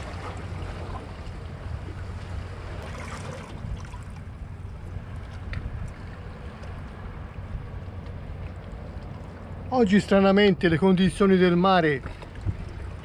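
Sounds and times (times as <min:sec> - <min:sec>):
sea water washing against rocks: 0:00.0 - 0:07.2.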